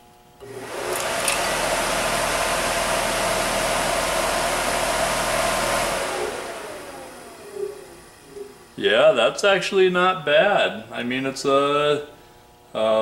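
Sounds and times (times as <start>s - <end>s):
blower motor whirring: 0.4s - 9.1s.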